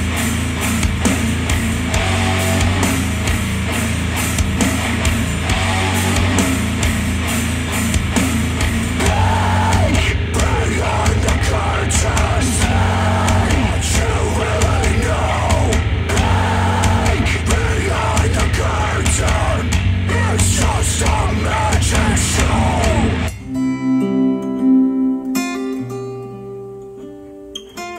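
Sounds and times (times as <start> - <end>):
bass line: 0.0 - 23.4
rock music through speakers: 0.0 - 25.8
person singing: 9.0 - 24.5.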